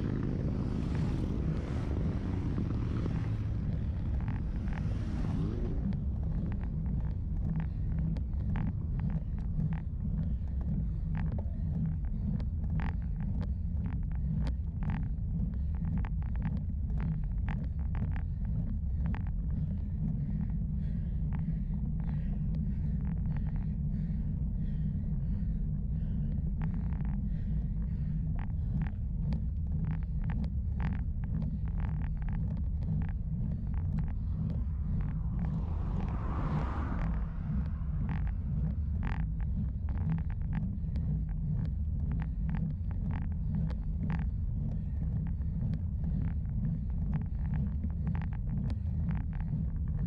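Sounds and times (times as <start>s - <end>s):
sharp ticks and clicks: 0.0s - 50.0s
wind buffeting microphone: 0.0s - 50.0s
rushing noise: 34.0s - 39.2s.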